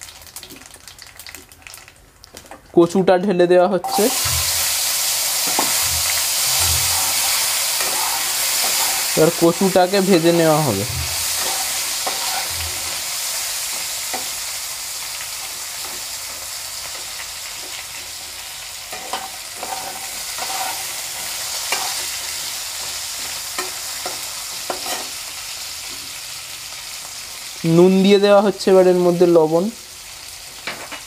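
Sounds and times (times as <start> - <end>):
metal spatula scraping pan: 3.8 - 13.4, 18.9 - 22.2
food sizzling in oil: 3.8 - 31.0.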